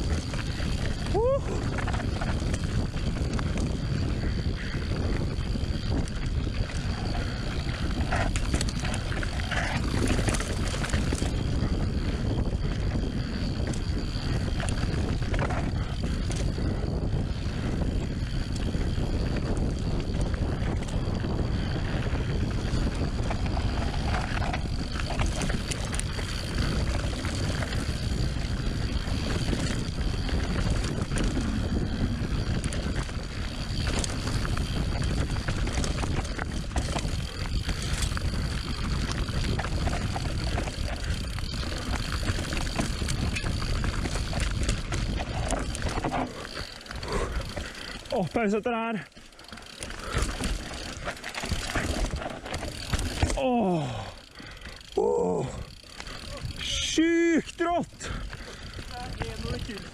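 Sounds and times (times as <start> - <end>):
bike rattling and knocking: 0.0 - 59.9
bike tyre rumble: 0.0 - 59.9
wind buffeting microphone: 0.0 - 59.9.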